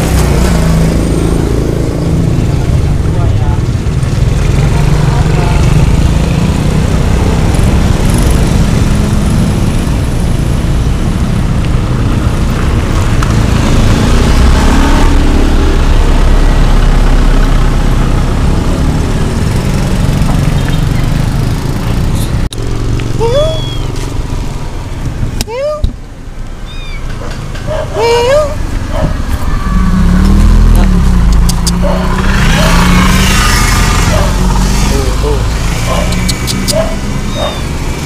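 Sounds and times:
motorcycle engine running: 0.0s - 25.3s
car engines running: 0.0s - 38.0s.

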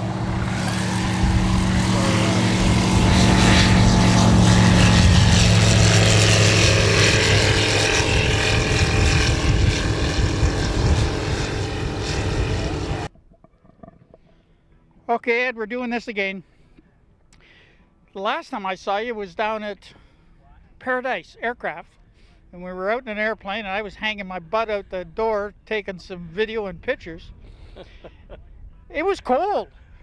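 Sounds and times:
light aircraft engine droning: 0.0s - 15.1s.

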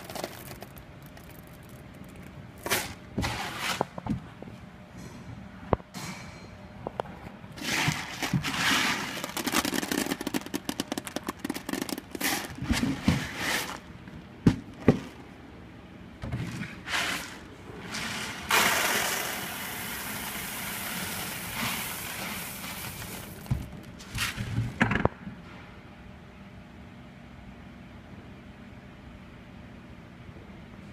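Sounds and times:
beans rattling into plastic bins: 0.0s - 3.8s, 7.6s - 13.9s, 16.4s - 25.0s.

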